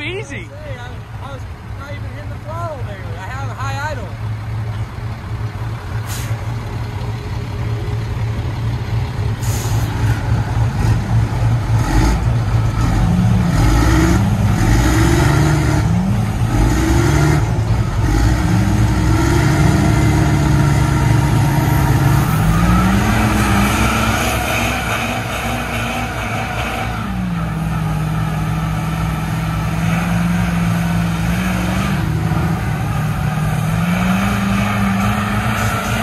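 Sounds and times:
diesel truck engines revving: 0:00.0 - 0:36.0.

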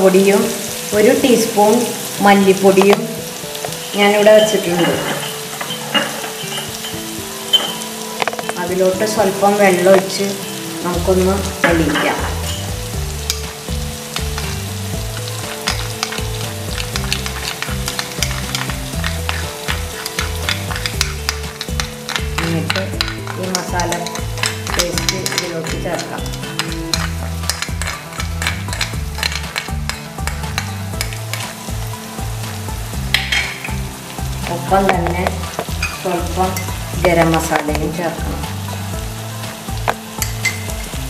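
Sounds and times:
masala sizzling in a frying pan: 0:00.0 - 0:41.0
metal spoon scraping a pan: 0:03.6 - 0:08.6, 0:15.2 - 0:32.0, 0:33.1 - 0:37.8, 0:39.8 - 0:40.9.

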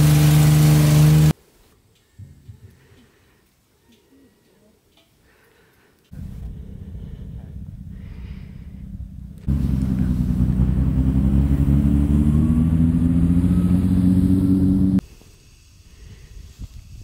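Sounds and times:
vehicle engine revving up: 0:00.0 - 0:01.4, 0:06.2 - 0:15.0.

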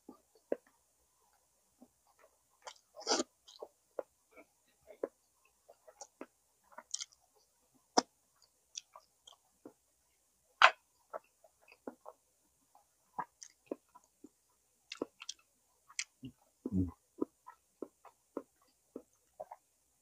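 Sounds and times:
person chewing with wet smacks: 0:02.1 - 0:07.2, 0:07.9 - 0:09.8, 0:10.6 - 0:16.4, 0:17.2 - 0:19.6.

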